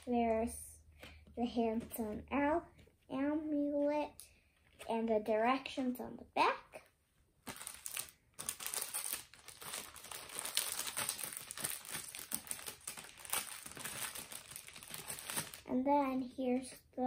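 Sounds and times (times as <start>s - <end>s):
packaging crinkling and rustling: 7.4s - 15.7s.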